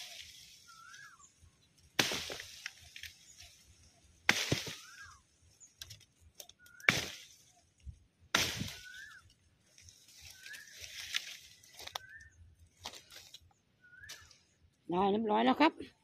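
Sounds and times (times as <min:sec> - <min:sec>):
bird chirping: 0:00.0 - 0:02.0, 0:02.8 - 0:08.0, 0:08.7 - 0:09.5, 0:10.1 - 0:15.1
twigs snapping and leaves shaking: 0:01.9 - 0:07.5, 0:08.4 - 0:12.2
chopping into wood: 0:02.0 - 0:02.6, 0:04.3 - 0:04.9, 0:06.8 - 0:07.2, 0:08.3 - 0:08.8.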